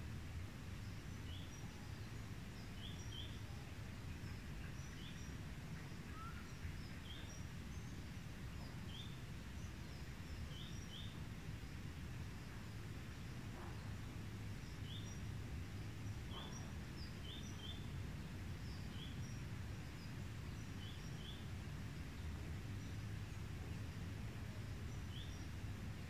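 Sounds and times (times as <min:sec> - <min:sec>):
low steady background noise: 0:00.0 - 0:26.0
bird chirping: 0:13.6 - 0:17.9.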